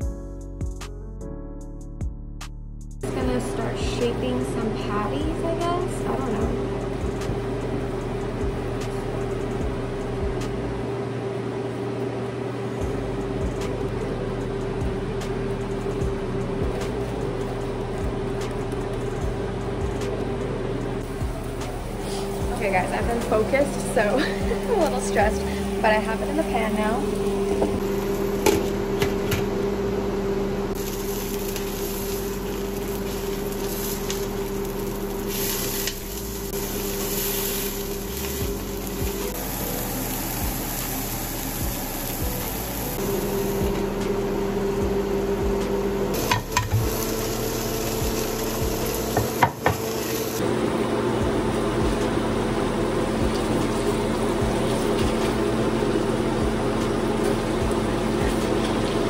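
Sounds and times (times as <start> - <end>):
steady low hum: 3.0 - 59.0
burger patties sizzling in a skillet: 30.8 - 44.0, 46.2 - 50.4.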